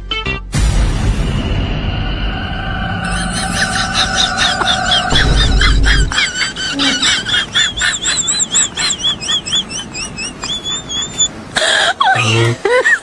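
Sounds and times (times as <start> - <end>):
low boom: 0.5 - 6.2.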